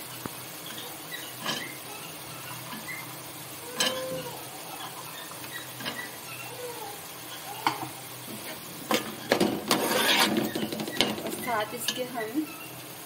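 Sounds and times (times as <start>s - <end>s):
food sizzling in a pan: 0.0s - 13.0s
metal spatula clinking on pan: 0.7s - 1.8s, 3.7s - 4.2s, 7.6s - 12.1s.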